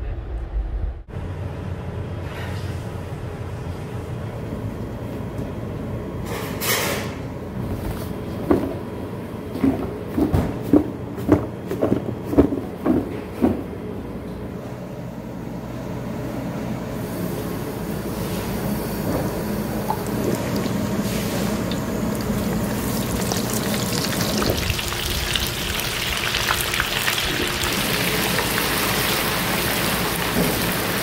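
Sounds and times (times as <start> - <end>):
low kitchen hum: 0.0 - 31.0.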